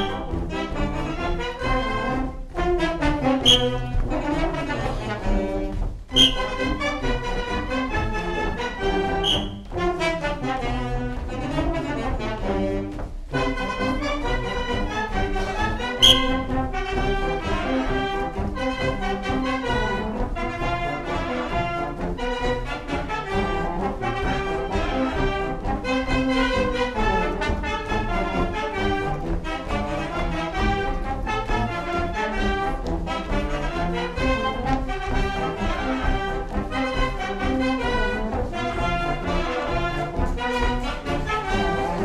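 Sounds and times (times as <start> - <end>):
brass band playing: 0.0 - 42.0.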